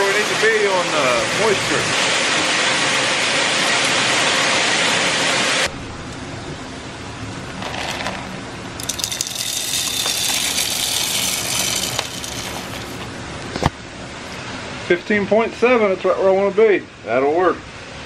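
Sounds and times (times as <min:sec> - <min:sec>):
corn kernels poured rattling: 0:07.6 - 0:13.1
grain dryer rushing: 0:07.6 - 0:13.2.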